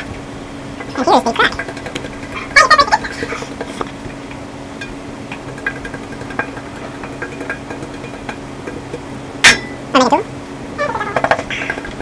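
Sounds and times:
low steady hum: 0:00.0 - 0:12.0
flour tapping in metal pan: 0:04.8 - 0:09.7.

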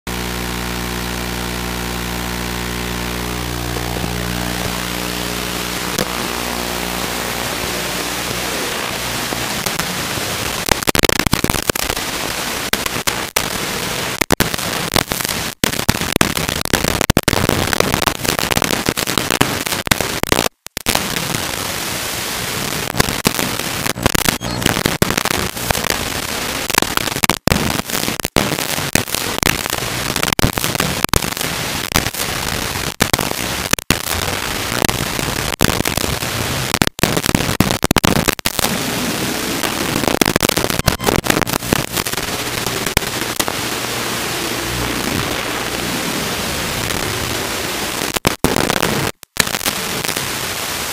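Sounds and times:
steady electronic buzz: 0:00.1 - 0:12.7, 0:38.6 - 0:48.0
static hiss and crackle: 0:00.1 - 0:50.9.

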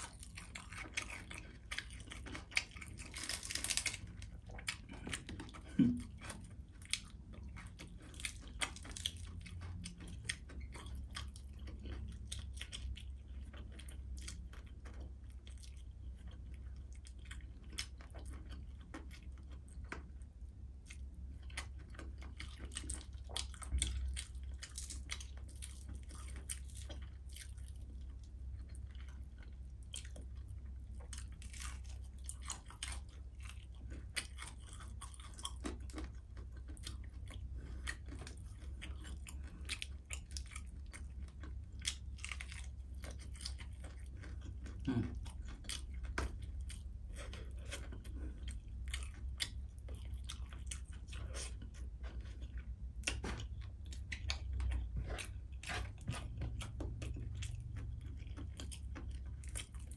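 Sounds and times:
chewing crispy fried fish: 0:00.0 - 0:59.9.

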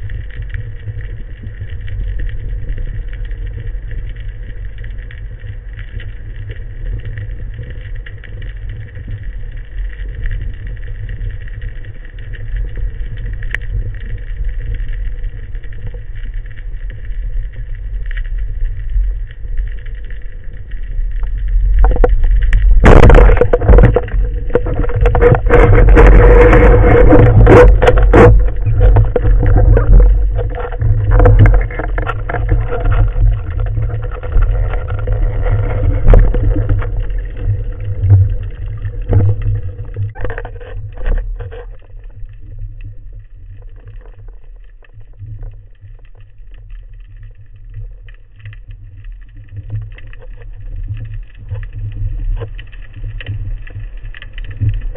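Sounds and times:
underwater rumble: 0:00.0 - 0:54.9
water rushing: 0:21.8 - 0:41.2.

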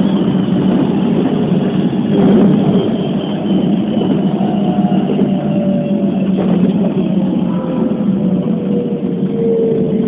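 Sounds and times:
traction motor whine: 0:00.0 - 0:10.0
train wheels rumbling on rails: 0:00.0 - 0:10.0.

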